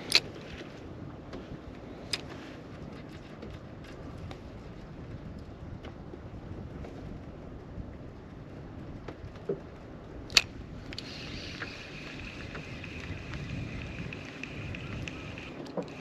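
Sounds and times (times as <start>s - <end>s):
wind: 0.0s - 16.0s
water lapping at boat hull: 8.9s - 16.0s
fishing reel click: 10.3s - 16.0s
fishing reel whining: 10.9s - 16.0s.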